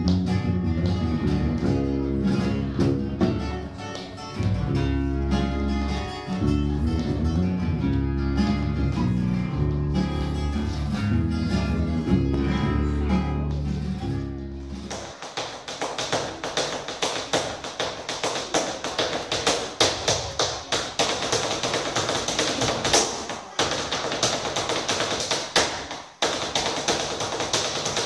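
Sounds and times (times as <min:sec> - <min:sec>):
acoustic guitar strumming: 0:00.0 - 0:14.8.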